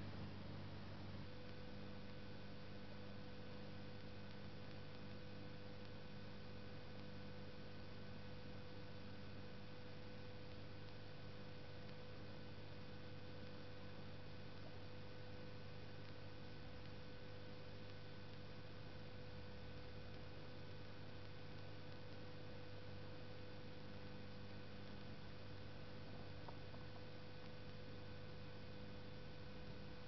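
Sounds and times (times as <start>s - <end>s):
electrical hum: 0.0s - 30.0s.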